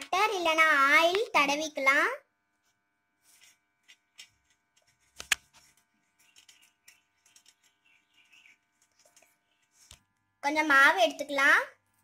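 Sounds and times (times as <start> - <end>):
fingers rubbing steel plate: 4.8 - 9.9.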